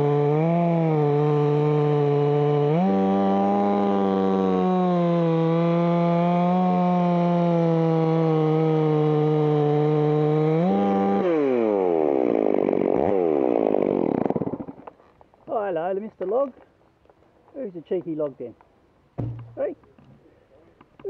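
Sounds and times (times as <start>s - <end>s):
chainsaw cutting wood: 0.0s - 15.3s, 19.2s - 19.6s.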